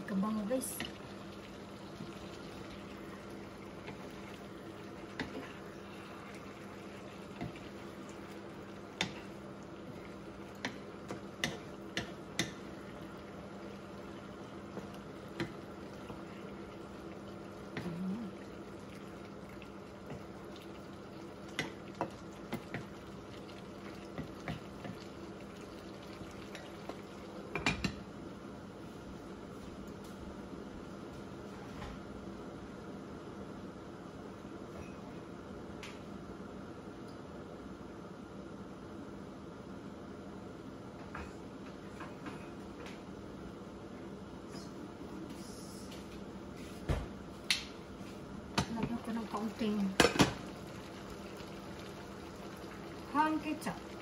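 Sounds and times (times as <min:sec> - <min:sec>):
sauce bubbling in a pan: 0:00.1 - 0:29.4, 0:47.6 - 0:54.0.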